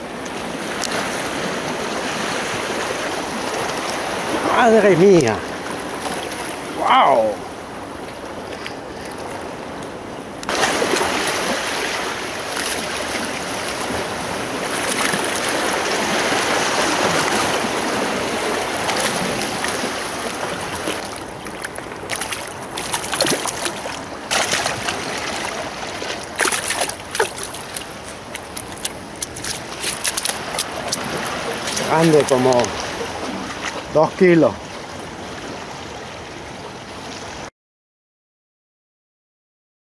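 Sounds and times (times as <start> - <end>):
sea water rushing: 0.0 - 37.5
wind: 0.0 - 37.5
water splashes and knocks: 8.0 - 35.7.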